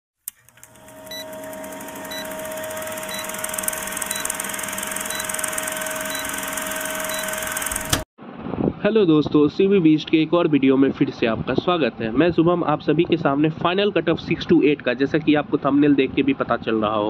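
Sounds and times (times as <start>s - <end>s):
film projector running: 0.3s - 8.1s
steady hum: 0.5s - 8.0s
short high blips: 1.1s - 8.0s.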